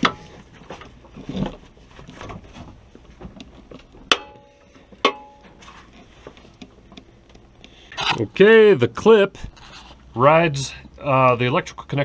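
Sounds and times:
faint scraping: 9.3s - 10.9s.

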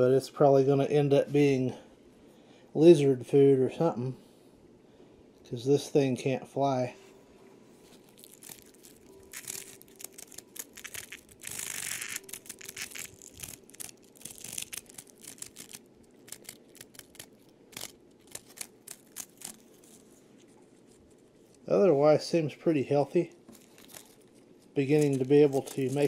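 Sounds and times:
insect scrabbling on wood: 8.1s - 20.0s.

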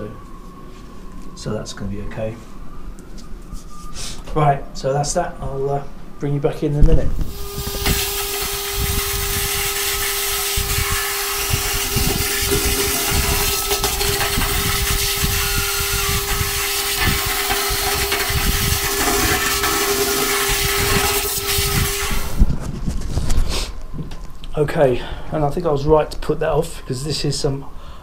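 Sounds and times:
vacuum cleaner motor whine: 7.2s - 22.5s
vacuum hose gurgling: 7.3s - 22.4s.

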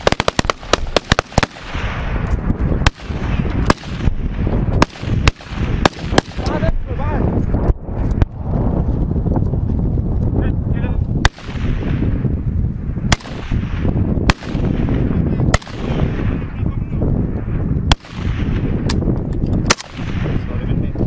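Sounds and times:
rifle shots echoing: 0.0s - 6.8s, 11.2s - 12.2s, 13.1s - 16.6s, 17.9s - 20.5s
steady low rumble: 0.0s - 21.0s.

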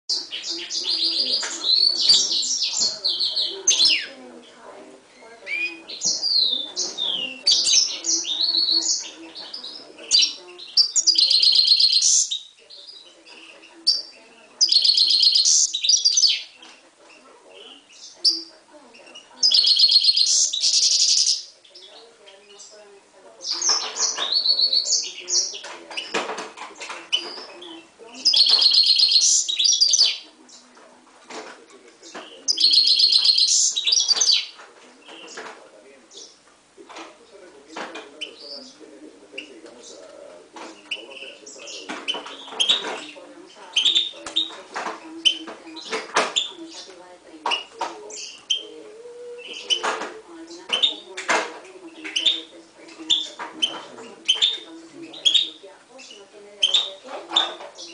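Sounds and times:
finch singing whistled notes: 5.4s - 16.6s, 19.1s - 22.7s, 27.1s - 30.6s, 32.2s - 35.4s, 47.5s - 50.0s, 53.1s - 57.9s.

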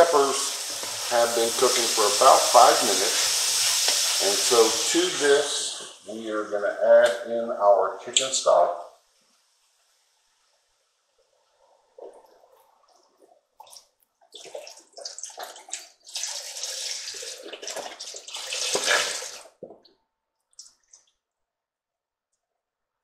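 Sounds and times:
liquid splashes: 12.0s - 19.9s
stock pouring into a pot: 12.1s - 19.6s.

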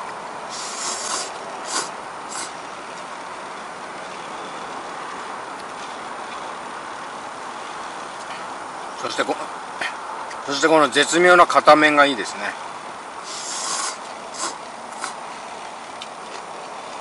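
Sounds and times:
electric fans hissing: 0.0s - 11.4s, 12.1s - 15.6s
noodles being slurped: 0.5s - 2.5s, 13.2s - 15.2s.

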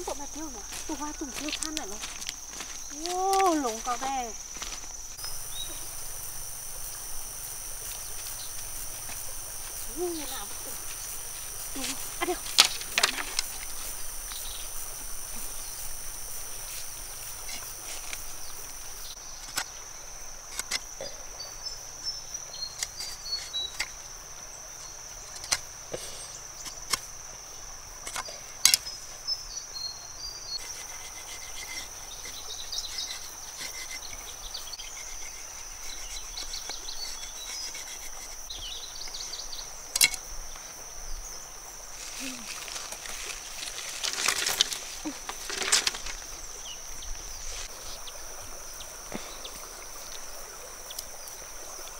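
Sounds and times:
insects droning: 0.0s - 51.9s
clicks and taps of bamboo sticks: 0.7s - 4.1s, 11.8s - 13.8s, 20.5s - 20.9s, 25.3s - 27.1s, 28.0s - 28.9s, 39.9s - 40.2s, 42.5s - 46.3s.

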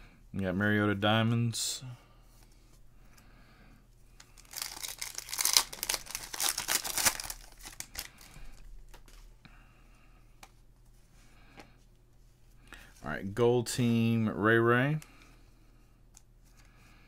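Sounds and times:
wrapper tearing and crinkling: 4.4s - 8.4s.

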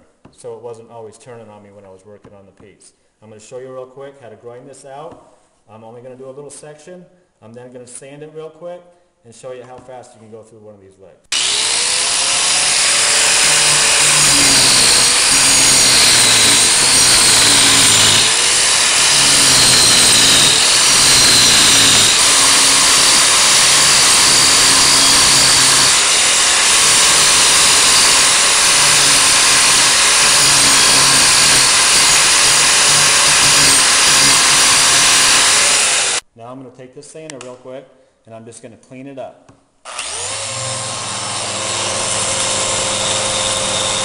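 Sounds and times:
angle grinder grinding wood: 11.3s - 36.2s, 39.9s - 44.0s.

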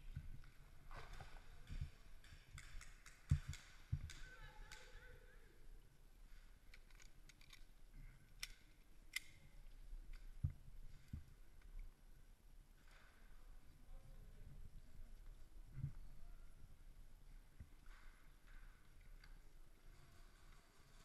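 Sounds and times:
faint voice: 4.2s - 5.7s.

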